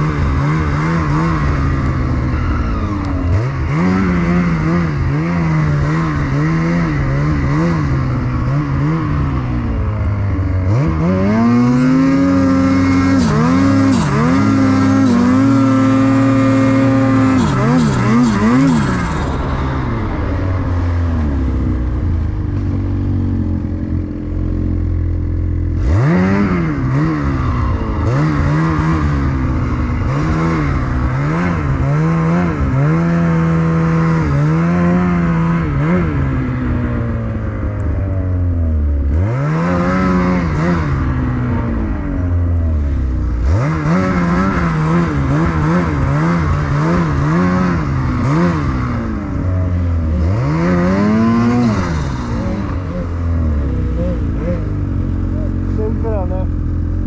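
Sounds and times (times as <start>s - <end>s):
snowmobile engine revving: 0.0s - 57.0s.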